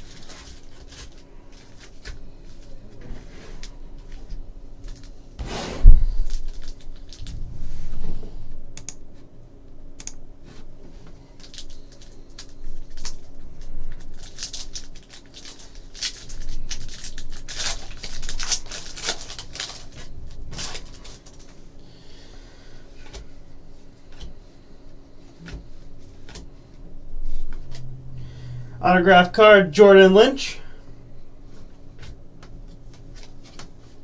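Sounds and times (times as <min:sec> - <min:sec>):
foil wrappers crinkling: 0:00.0 - 0:03.0, 0:06.2 - 0:07.4, 0:11.3 - 0:21.8.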